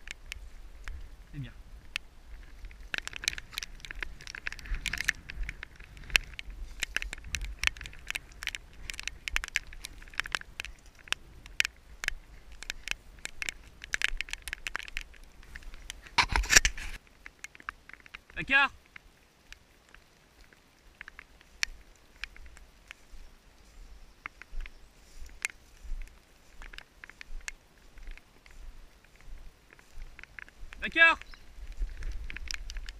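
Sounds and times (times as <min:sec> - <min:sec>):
footsteps on wet ground: 0:00.0 - 0:32.9
rustle: 0:00.0 - 0:32.9.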